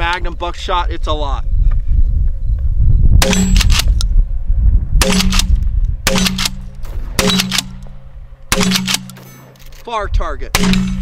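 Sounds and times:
wind buffeting microphone: 0.0 - 8.6
shotgun blasts: 3.2 - 4.0, 5.0 - 9.6, 10.5 - 11.0.

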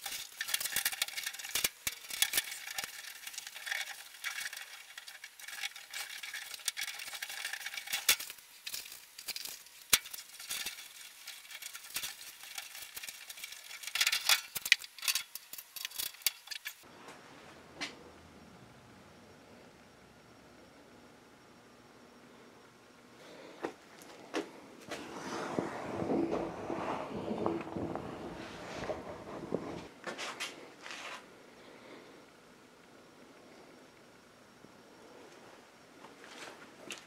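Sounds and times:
faint low hum: 8.6 - 37.0.

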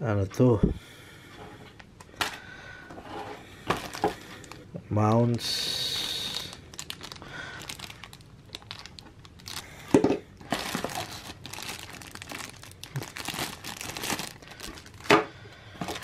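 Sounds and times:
plastic bags crinkling: 3.6 - 16.0.

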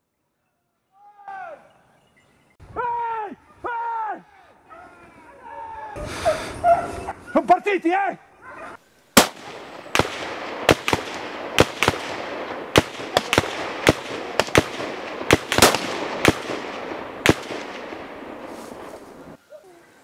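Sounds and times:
gunshots echoing: 9.2 - 19.4.

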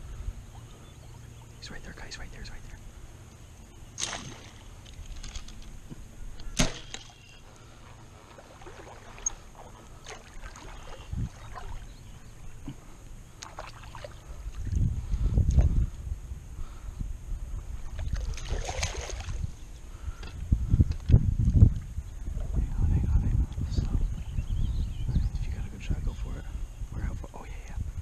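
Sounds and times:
wading through shallow water: 0.0 - 16.8, 17.4 - 20.2
bow shot snap: 4.0 - 4.6, 6.4 - 7.2
wind rumble on microphone: 7.7 - 28.0.

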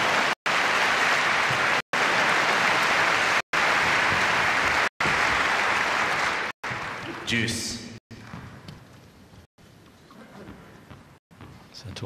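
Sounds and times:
crowd applauding: 0.0 - 7.8.

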